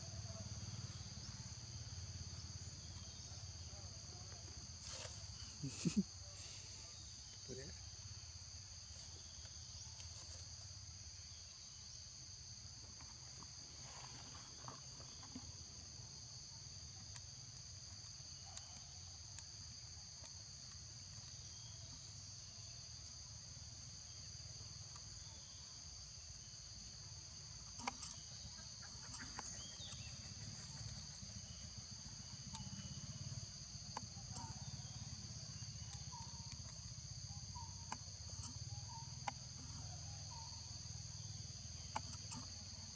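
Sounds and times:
insects buzzing chorus: 0:00.0 - 0:42.9
faint clicks and chirps: 0:08.8 - 0:10.7, 0:16.7 - 0:25.6, 0:26.2 - 0:42.9.

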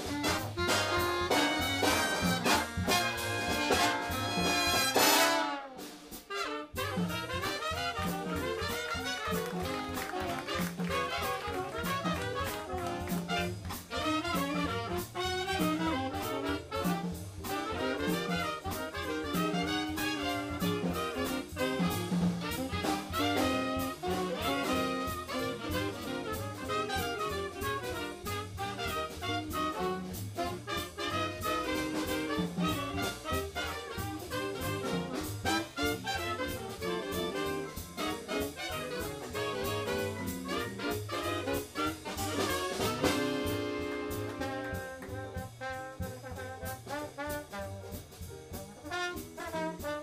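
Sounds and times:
big band jazz: 0:00.0 - 0:50.0.

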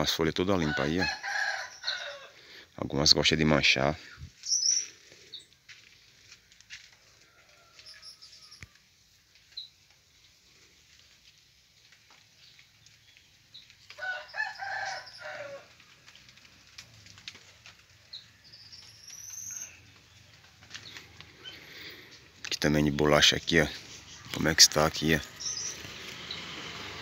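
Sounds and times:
rooster crowing: 0:00.6 - 0:02.4, 0:07.0 - 0:08.8, 0:13.9 - 0:15.9
faint high bird chirps: 0:04.4 - 0:05.5, 0:07.6 - 0:08.8, 0:18.1 - 0:21.6, 0:25.4 - 0:26.5.

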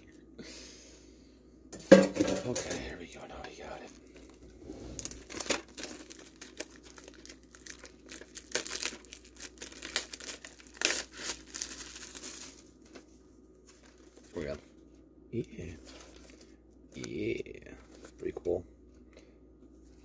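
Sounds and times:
plastic wrap crinkling: 0:03.9 - 0:14.9, 0:15.7 - 0:18.2.

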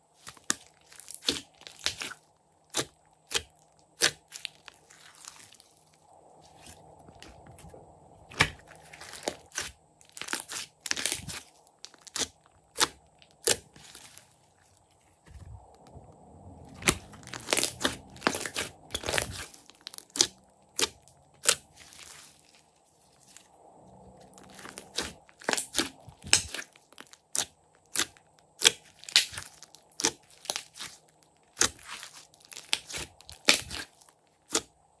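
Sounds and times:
slime squeezing and popping: 0:00.2 - 0:05.7, 0:08.3 - 0:14.2, 0:16.7 - 0:22.3, 0:24.3 - 0:34.7.

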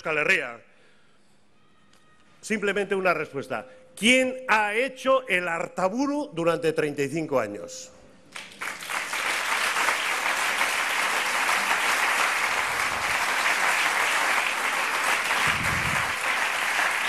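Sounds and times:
audience applauding: 0:08.4 - 0:17.0.

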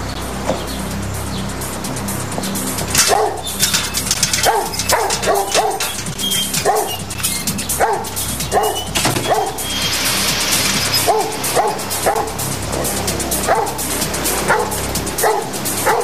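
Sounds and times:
background music: 0:00.0 - 0:16.0
dog barking: 0:03.0 - 0:03.5, 0:04.4 - 0:09.6, 0:11.0 - 0:12.5, 0:13.4 - 0:16.0.

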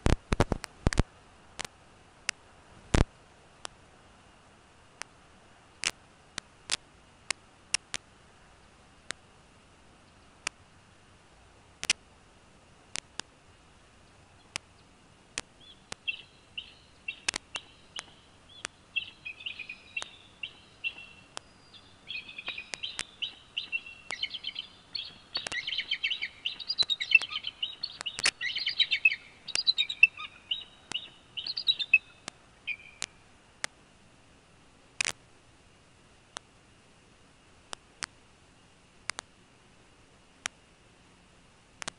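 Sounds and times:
sharp clicks: 0:11.8 - 0:12.0, 0:17.1 - 0:18.8, 0:19.6 - 0:21.5, 0:22.2 - 0:24.4, 0:25.0 - 0:29.7, 0:30.9 - 0:31.6, 0:39.0 - 0:39.3
eagle chittering calls: 0:14.4 - 0:33.2.

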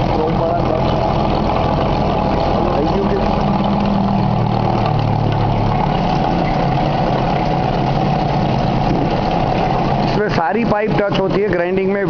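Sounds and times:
coolant stream running: 0:00.0 - 0:12.0
glass-grinding machine humming: 0:00.0 - 0:12.0.

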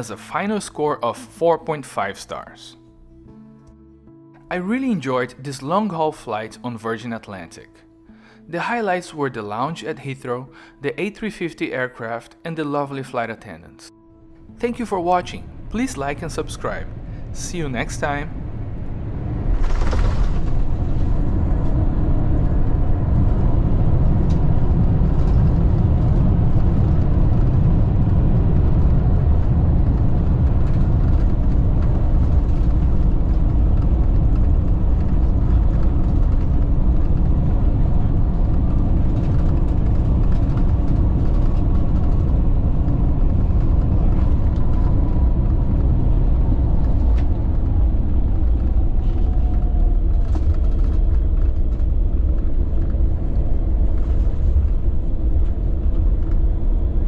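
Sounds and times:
rumble of wheels and engines: 0:03.7 - 0:57.0
faint falling whine: 0:14.3 - 0:57.0.

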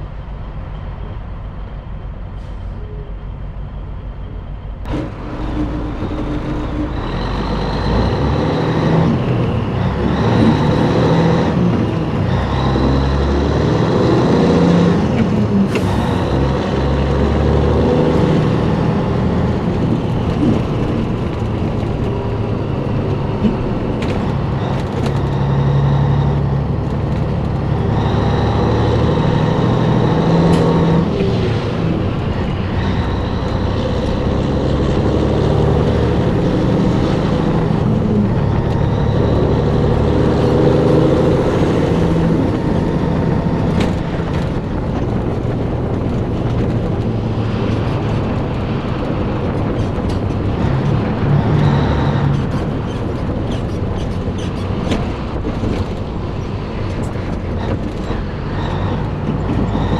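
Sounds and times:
truck diesel engine shifting gears: 0:00.0 - 0:59.9.

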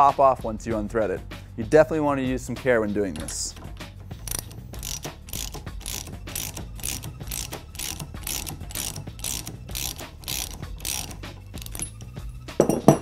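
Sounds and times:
socket ratchet clicking: 0:03.1 - 0:13.0.

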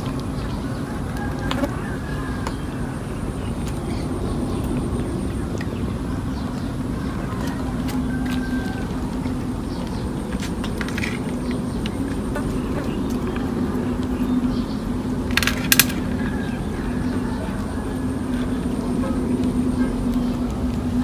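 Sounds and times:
low mechanical hum: 0:00.0 - 0:21.0
sharp clicks: 0:15.2 - 0:16.4.

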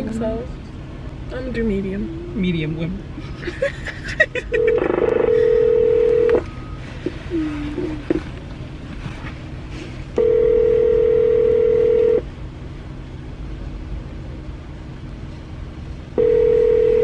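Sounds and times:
telephone ringback tone: 0:04.6 - 0:06.4, 0:10.2 - 0:12.2, 0:16.2 - 0:17.0.

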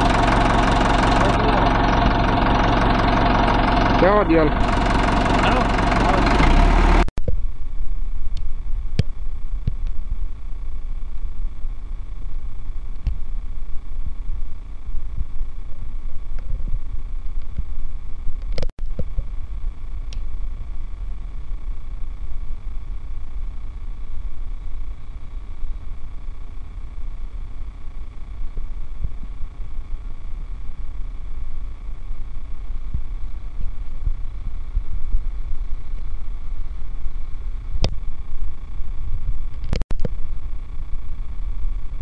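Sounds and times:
tractor engine rumbling under load: 0:00.0 - 0:07.1.

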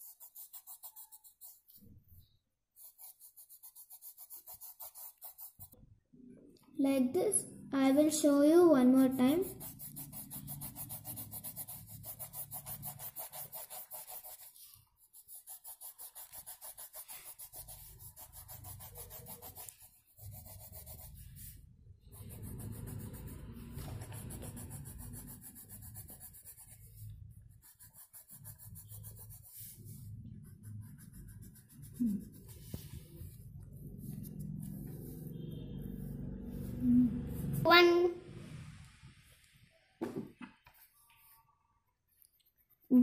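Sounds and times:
pencil squeak: 0:00.0 - 0:05.6
pencil shading on paper: 0:00.0 - 0:05.8, 0:08.8 - 0:37.8.

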